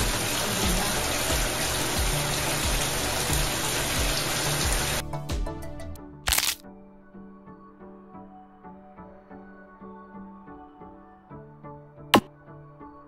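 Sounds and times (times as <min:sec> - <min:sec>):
shower water running: 0:00.0 - 0:05.0
background music with a beat: 0:00.0 - 0:06.3, 0:12.2 - 0:12.5.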